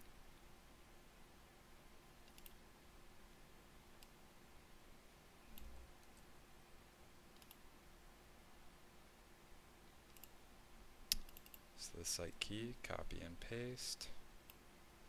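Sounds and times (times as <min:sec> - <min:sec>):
computer mouse clicks: 0:02.2 - 0:02.6, 0:07.3 - 0:07.6, 0:10.1 - 0:10.4, 0:11.1 - 0:11.6.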